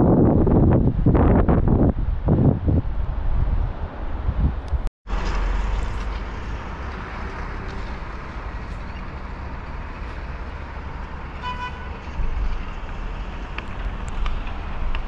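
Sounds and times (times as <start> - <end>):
traffic hum: 0.0 - 15.0
car horn toot: 11.4 - 12.1.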